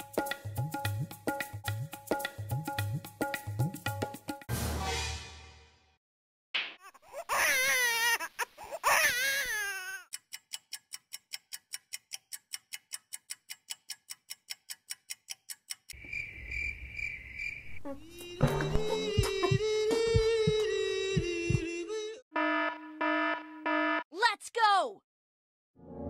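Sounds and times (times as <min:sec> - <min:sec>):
wailing sobbing cry: 0:06.9 - 0:10.1
clock ticking quickly: 0:10.1 - 0:16.0.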